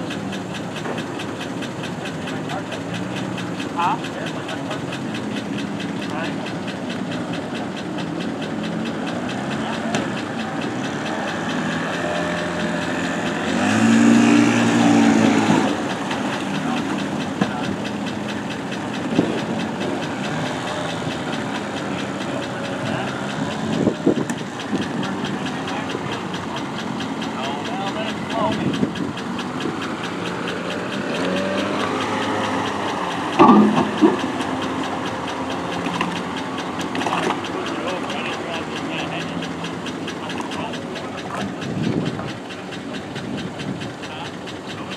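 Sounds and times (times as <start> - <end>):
engine running and revving: 0.0 - 44.9
fast regular ticking: 0.0 - 44.9
sharp knocks: 7.4 - 37.5.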